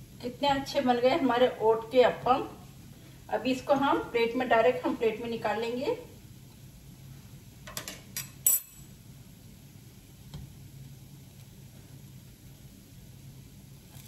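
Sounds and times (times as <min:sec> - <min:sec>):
metal utensils clinking on pan: 0:08.2 - 0:08.9.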